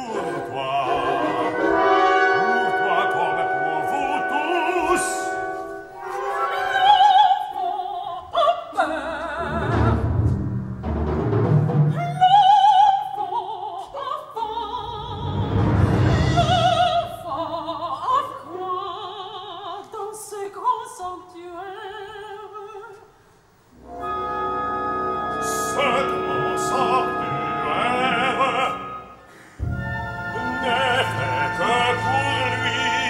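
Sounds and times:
orchestra playing: 0:00.0 - 0:07.2, 0:15.1 - 0:17.3, 0:23.7 - 0:33.0
woman singing opera: 0:06.0 - 0:10.0, 0:11.9 - 0:23.1, 0:29.8 - 0:33.0.

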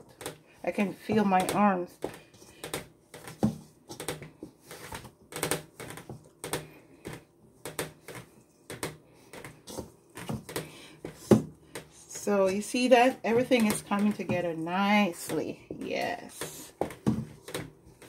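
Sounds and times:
dough thumping in metal bowl: 0:12.5 - 0:14.6.

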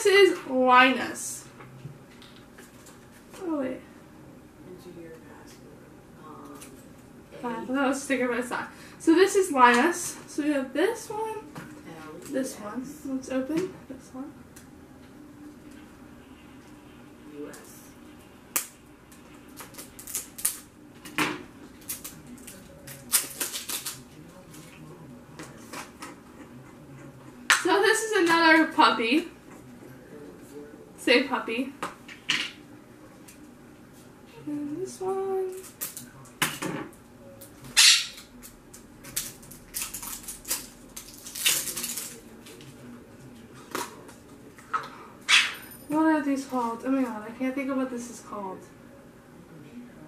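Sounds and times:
plastic wrapper crinkling: 0:21.8 - 0:24.0, 0:39.1 - 0:42.2.

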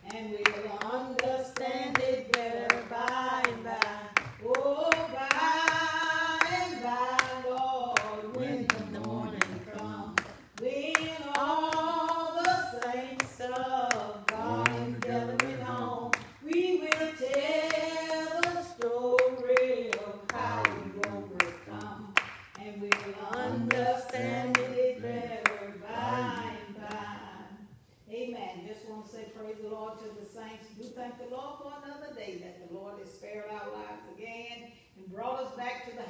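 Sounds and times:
hand-clapping steady beat: 0:00.0 - 0:27.2
woman singing a cappella: 0:00.0 - 0:36.0.

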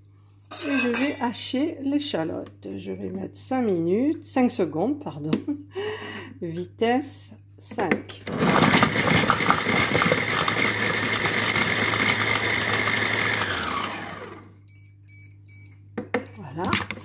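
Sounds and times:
food processor motor whine: 0:08.2 - 0:14.6.

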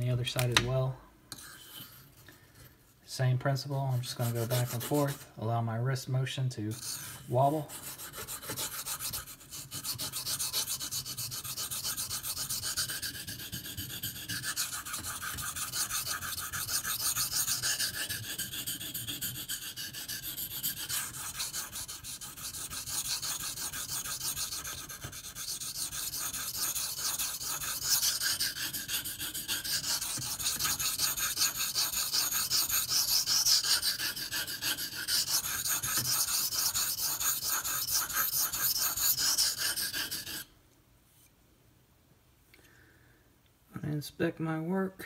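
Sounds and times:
knife scraping on whetstone: 0:01.3 - 0:02.1, 0:06.7 - 0:40.5.

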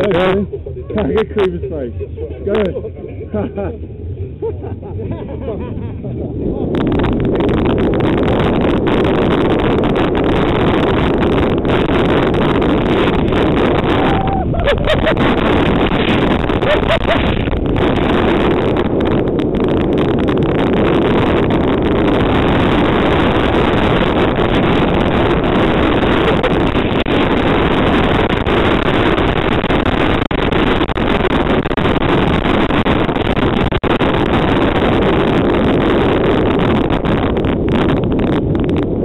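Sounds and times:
wind across microphone: 0:00.0 - 0:39.0
snow hissing under toboggan: 0:12.0 - 0:18.6, 0:21.5 - 0:30.3.

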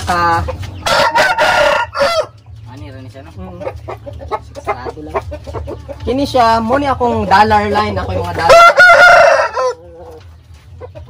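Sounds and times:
distant roosters crowing and clucking: 0:00.0 - 0:11.0
rooster crowing loudly: 0:00.9 - 0:02.3, 0:08.5 - 0:09.8.

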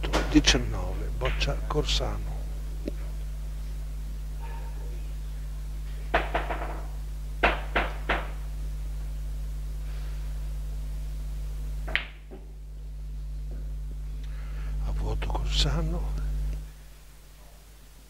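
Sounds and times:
billiard balls clacking on table: 0:01.2 - 0:01.5, 0:06.1 - 0:08.4.

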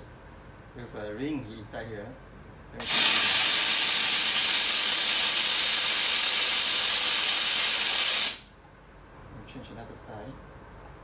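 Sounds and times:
steam jet hissing: 0:02.8 - 0:08.5.

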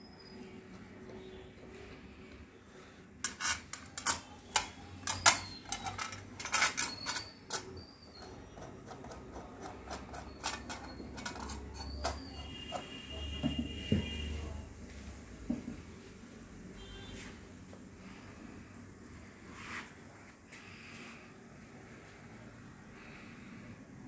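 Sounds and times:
short high squeaks: 0:04.2 - 0:08.8, 0:10.0 - 0:13.3.

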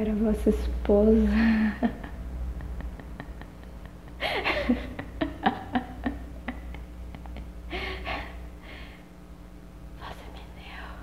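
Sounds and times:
girl laughing softly: 0:01.3 - 0:08.9.

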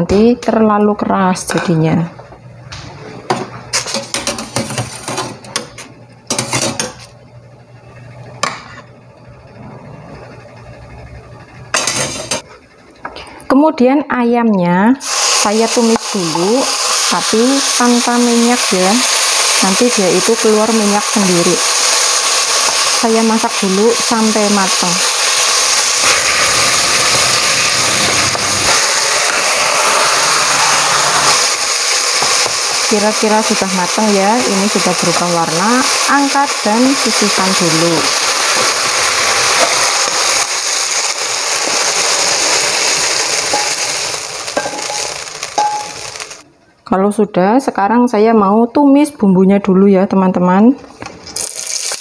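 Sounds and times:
chicken sizzling in a wok: 0:15.0 - 0:46.4, 0:51.4 - 0:52.0.

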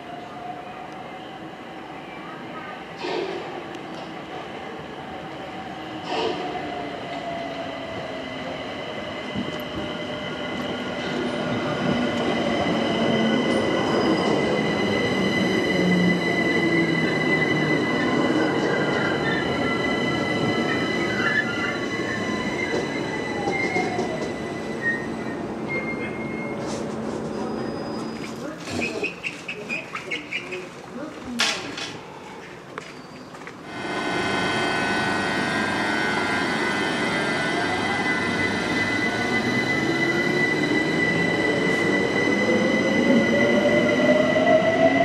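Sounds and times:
rumble of train carriages: 0:02.8 - 0:45.0
train wheel and brake squeal: 0:12.3 - 0:29.2
train whine falling in pitch: 0:33.7 - 0:41.4.

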